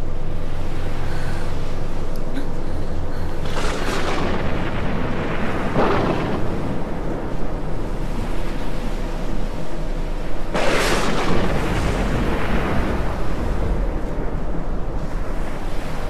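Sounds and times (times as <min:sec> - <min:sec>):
deep steady rumble: 0:00.0 - 0:16.0
rushing swells: 0:03.4 - 0:16.0.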